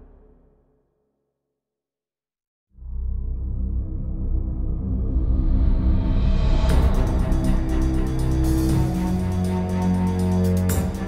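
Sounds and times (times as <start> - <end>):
low ambient music: 2.8 - 11.0.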